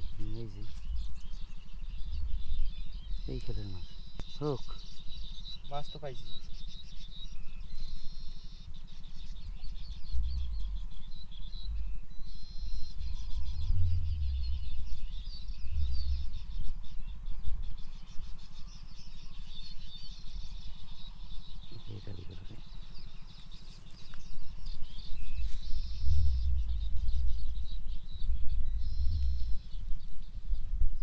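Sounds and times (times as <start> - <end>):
insects and birds chirping: 0.0 - 31.0
low thuds and rumbling: 12.8 - 17.7, 25.2 - 30.0.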